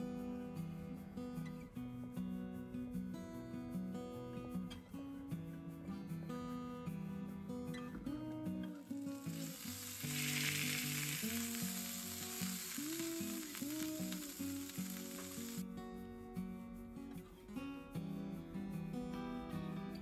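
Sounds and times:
soft acoustic guitar music: 0.0s - 20.0s
meat sizzling in a frying pan: 8.8s - 15.6s.

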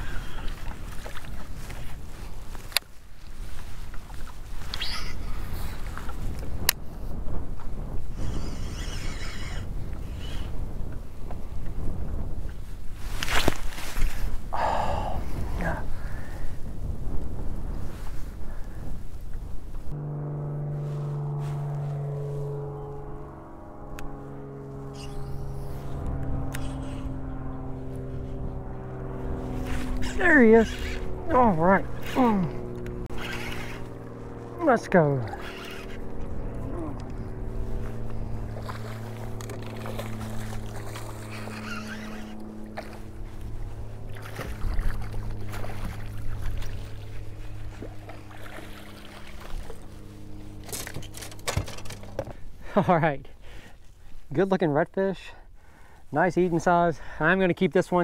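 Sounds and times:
boat motor humming: 0.0s - 54.4s
water splashing: 38.4s - 52.2s.

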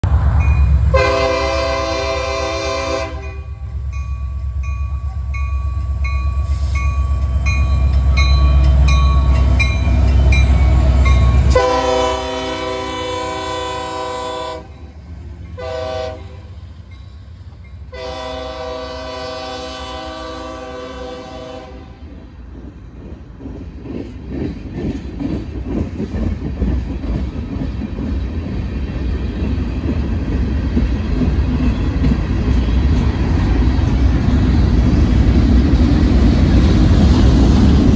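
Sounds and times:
diesel locomotives rumbling: 0.0s - 37.9s
locomotive air horn blasts: 0.9s - 3.6s, 11.5s - 14.8s, 15.6s - 16.5s, 17.9s - 22.0s
train wheels clacking over rail joints: 22.4s - 37.9s.

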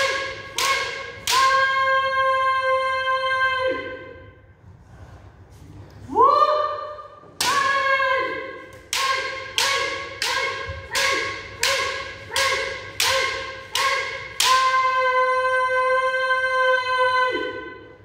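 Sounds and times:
bamboo sword strikes: 0.0s - 1.6s, 8.8s - 14.9s.

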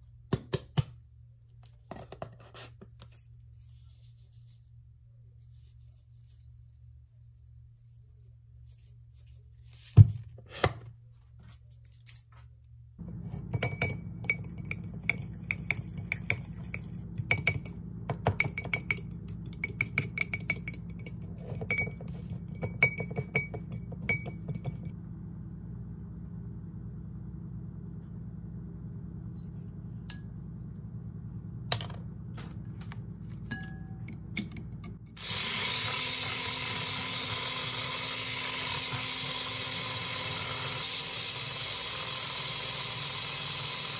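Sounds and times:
fork clinking against glass bowl: 13.6s - 17.8s, 18.4s - 24.9s
electric hand mixer whirring: 35.2s - 43.9s.

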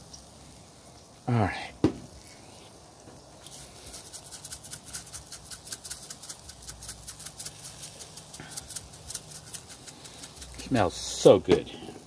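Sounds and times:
spice shaker rattling: 3.4s - 11.1s.

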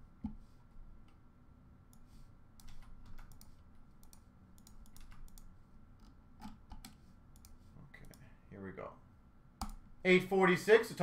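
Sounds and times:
typing on keyboard: 2.6s - 5.5s.

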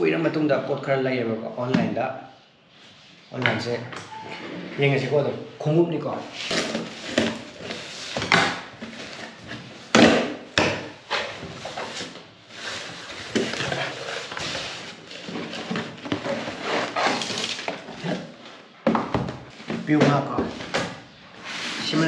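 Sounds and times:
cardboard scraping and knocking: 6.4s - 22.0s.

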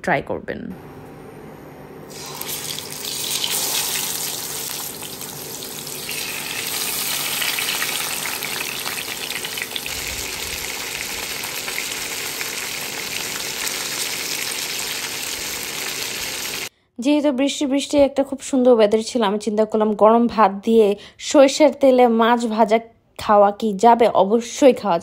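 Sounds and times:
fish sizzling in hot oil: 2.1s - 16.7s.

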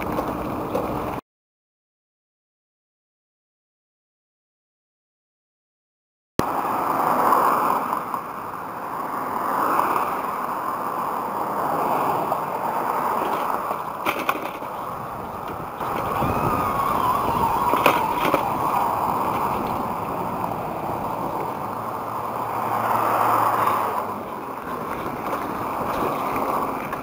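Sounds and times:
passing traffic rumble: 0.0s - 1.2s, 6.4s - 27.0s
tyres rolling over gravel: 0.0s - 1.2s, 6.5s - 27.0s
wind noise on camera: 9.4s - 27.0s.

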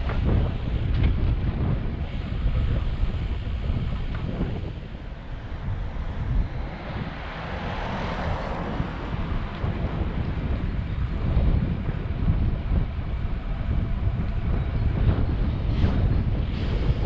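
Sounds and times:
wind buffeting microphone: 0.0s - 17.0s
car passing: 4.7s - 17.0s.

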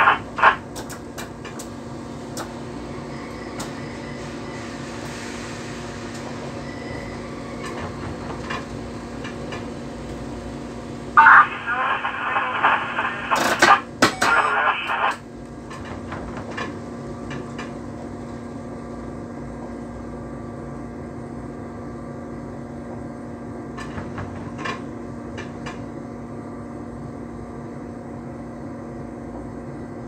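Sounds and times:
radio transmission: 0.0s - 0.6s, 11.2s - 15.2s
train cab hum: 0.0s - 30.0s.

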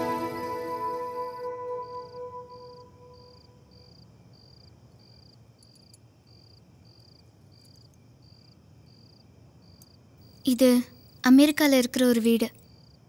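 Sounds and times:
soft music: 0.0s - 3.4s
cricket chirping: 0.0s - 13.0s.

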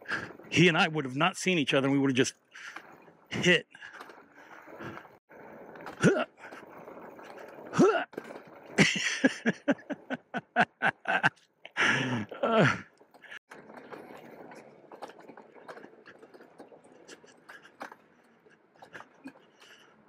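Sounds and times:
tyres rolling over dirt: 0.0s - 20.0s
crunches and clicks: 2.1s - 20.0s
man laughing: 7.8s - 8.1s, 8.8s - 12.9s.

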